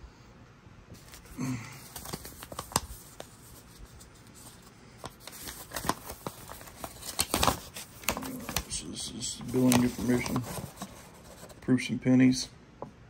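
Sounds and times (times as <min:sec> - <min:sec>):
paper rustling and crinkling: 0:00.9 - 0:11.6.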